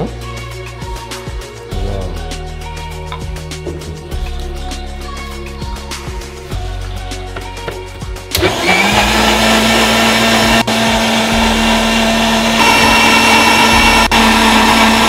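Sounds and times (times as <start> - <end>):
blender motor whirring: 8.3 - 15.0.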